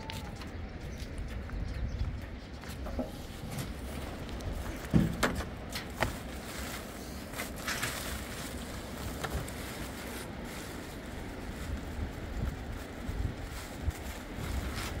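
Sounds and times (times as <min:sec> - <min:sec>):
wind rumbling on microphone: 0:00.0 - 0:15.0
sack rustling: 0:06.1 - 0:15.0.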